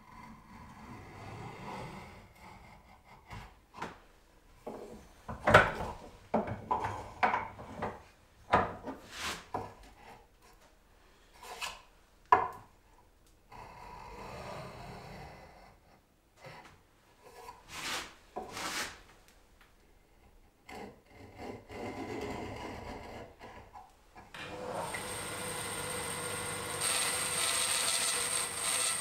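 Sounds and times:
hand plane scraping wood: 9.0s - 10.2s, 17.3s - 19.0s, 20.7s - 23.8s, 26.4s - 29.0s.

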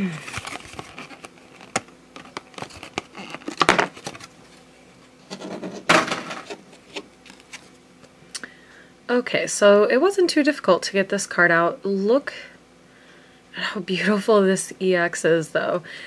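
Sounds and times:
plastic crinkling: 0.1s - 4.6s, 6.7s - 7.8s.

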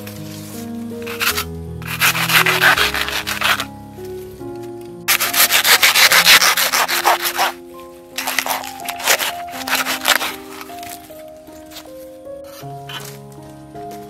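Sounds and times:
background music: 0.0s - 14.0s
hand saw cutting bamboo: 1.1s - 3.7s, 5.1s - 7.6s, 8.2s - 10.7s.

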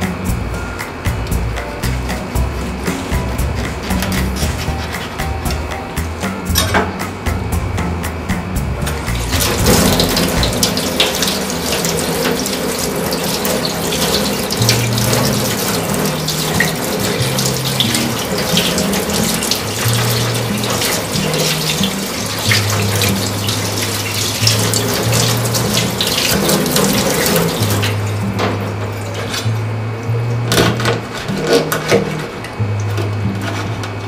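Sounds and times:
tap water splashing into sink: 9.1s - 29.5s.

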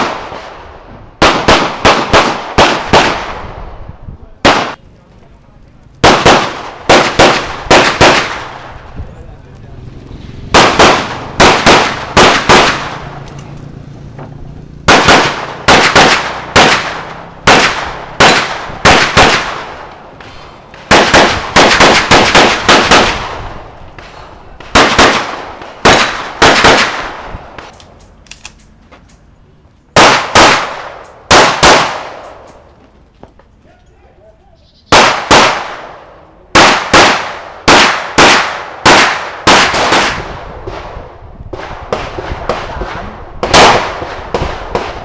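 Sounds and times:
pistol shots with echo: 0.0s - 3.6s, 4.4s - 4.8s, 6.0s - 8.8s, 10.5s - 13.2s, 14.9s - 19.9s, 20.9s - 23.6s, 24.6s - 27.4s, 30.0s - 32.5s, 34.9s - 45.0s.

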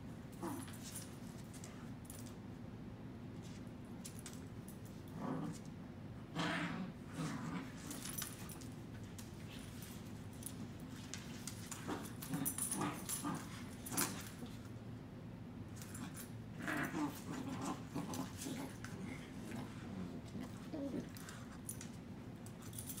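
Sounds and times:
dogs growling and whining: 0.3s - 0.8s, 5.1s - 8.4s, 11.7s - 14.3s, 15.9s - 21.8s
dogs scuffling on floor: 7.6s - 14.8s.

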